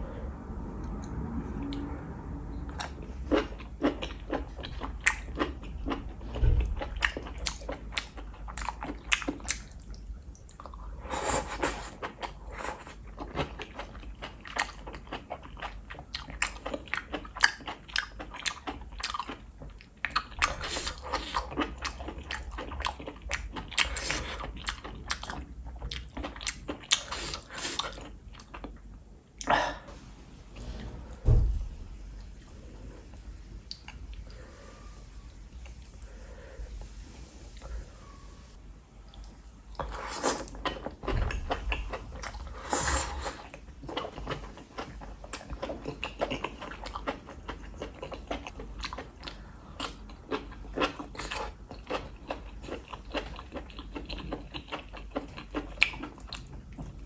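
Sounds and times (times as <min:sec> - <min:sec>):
person chewing wetly: 0:02.7 - 0:29.6, 0:39.0 - 0:57.0.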